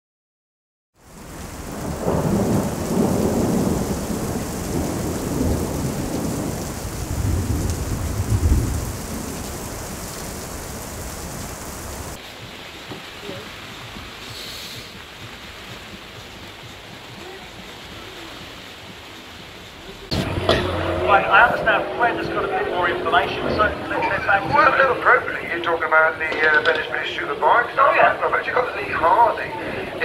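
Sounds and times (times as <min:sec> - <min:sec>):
thunder rumbling: 0:01.0 - 0:12.2, 0:19.7 - 0:30.0
rain falling: 0:01.0 - 0:30.0.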